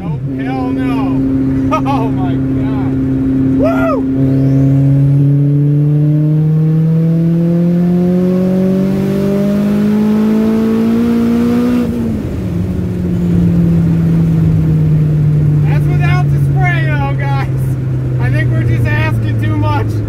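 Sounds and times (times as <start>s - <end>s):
car engine accelerating: 0.0s - 20.0s.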